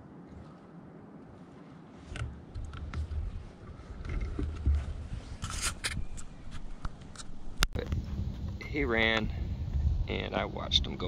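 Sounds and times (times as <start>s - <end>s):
crossbow handling scraping: 2.0s - 7.6s.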